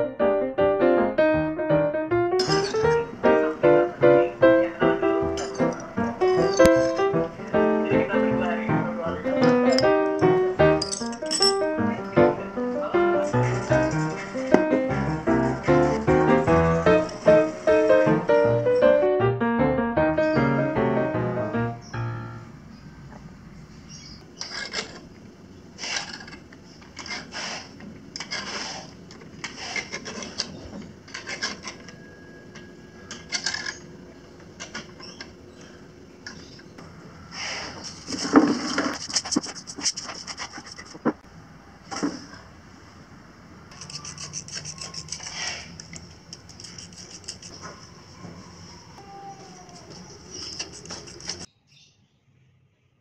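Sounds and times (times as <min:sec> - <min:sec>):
hangers scraping: 0:02.4 - 0:03.1, 0:05.3 - 0:07.7, 0:09.2 - 0:11.8, 0:13.2 - 0:18.8, 0:24.4 - 0:25.2, 0:25.8 - 0:32.2, 0:33.0 - 0:35.4, 0:37.3 - 0:41.2, 0:43.7 - 0:47.9, 0:49.5 - 0:51.5.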